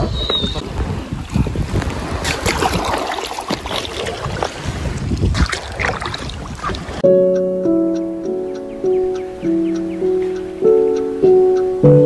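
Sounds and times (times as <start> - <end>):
wind rumbling on microphone: 0.0 - 7.0
river water splashing and rushing: 0.6 - 7.1.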